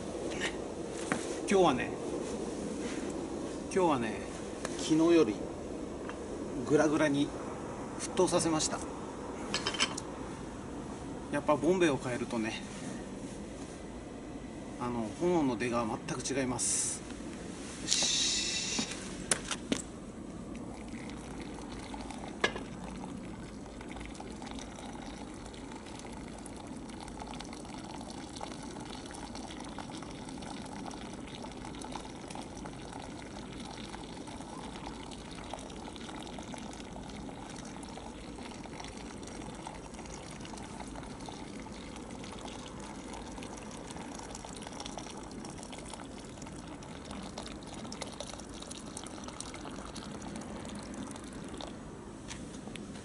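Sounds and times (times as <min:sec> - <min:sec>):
water pouring from kettle: 0:20.5 - 0:51.7.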